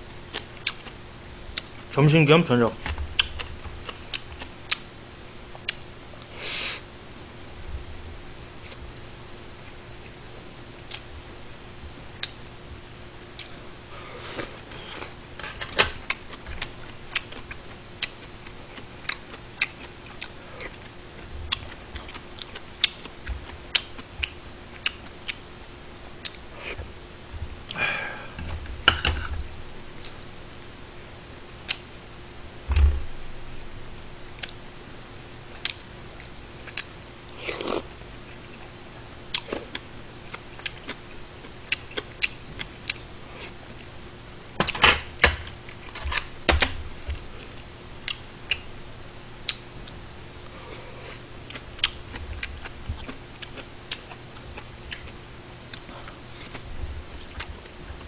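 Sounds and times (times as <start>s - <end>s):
chewing: 0.3s - 1.7s, 13.4s - 15.2s, 35.5s - 35.8s, 39.3s - 41.0s, 49.5s - 58.0s
slurping broth: 37.4s - 37.9s.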